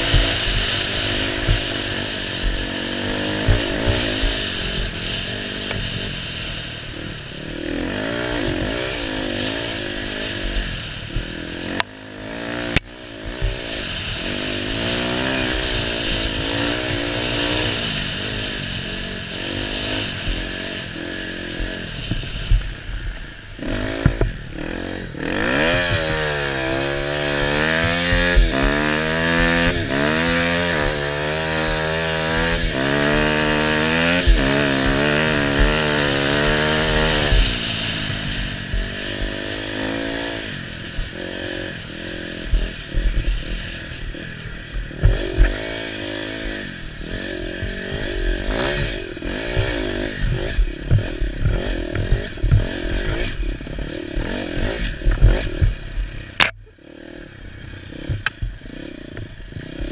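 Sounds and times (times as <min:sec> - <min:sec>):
bike thumping over rough ground: 0:00.0 - 0:00.6, 0:25.6 - 0:38.0, 0:44.8 - 0:56.7, 0:58.0 - 0:58.6
dirt bike engine revving: 0:00.0 - 0:59.9.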